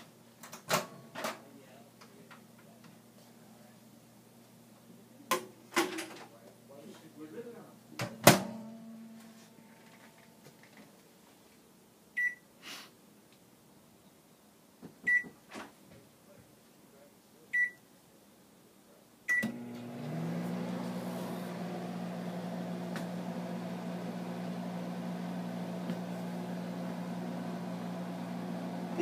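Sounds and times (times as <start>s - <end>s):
microwave oven humming: 19.3s - 29.0s.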